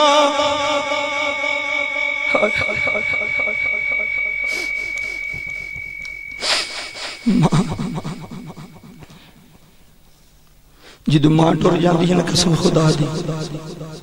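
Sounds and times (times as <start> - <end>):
man's voice: 0.0 - 3.6, 11.1 - 14.0
high feedback whistle: 0.0 - 10.1
short noisy burst: 3.3 - 7.8.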